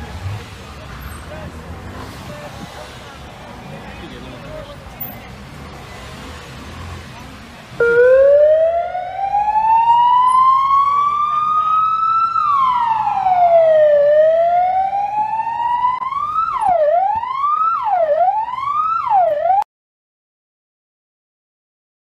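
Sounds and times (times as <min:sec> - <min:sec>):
police siren wailing: 0:07.8 - 0:19.7.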